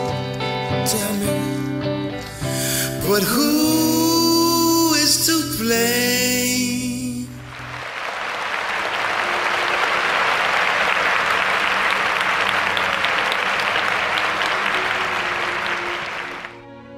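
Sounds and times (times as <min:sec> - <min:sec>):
audience applauding: 0:06.6 - 0:16.7.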